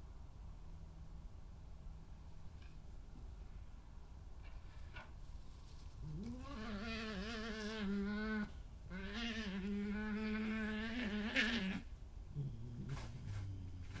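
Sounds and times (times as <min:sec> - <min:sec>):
badgers growling: 0:06.0 - 0:14.0.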